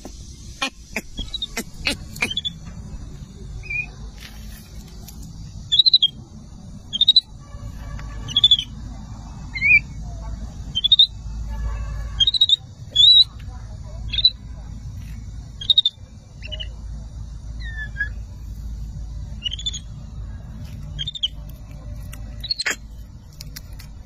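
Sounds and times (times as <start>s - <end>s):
baby monkey chirping calls: 0.5s - 2.6s, 3.6s - 3.9s, 5.7s - 6.2s, 6.8s - 7.4s, 8.2s - 8.8s, 9.5s - 10.0s, 10.7s - 11.2s, 12.2s - 13.4s, 14.0s - 14.4s, 15.6s - 16.8s, 17.5s - 18.3s, 19.4s - 20.0s, 20.8s - 21.4s, 22.2s - 23.0s.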